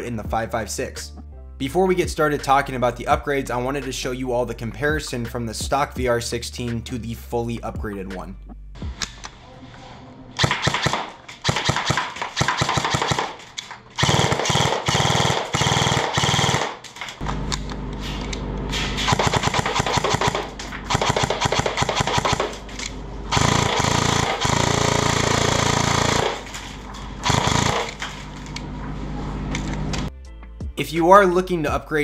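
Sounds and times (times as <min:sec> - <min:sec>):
airsoft rifle shots: 0:10.4 - 0:17.2, 0:18.7 - 0:28.4
steady low hum: 0:13.3 - 0:30.1.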